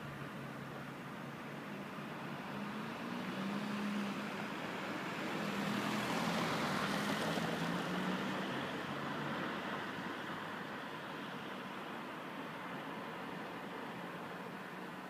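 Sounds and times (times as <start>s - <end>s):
car driving past on wet road: 2.5s - 10.5s.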